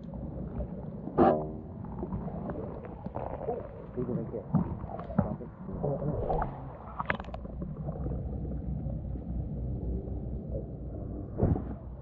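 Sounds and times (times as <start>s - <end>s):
muffled underwater rumble: 0.0s - 12.0s.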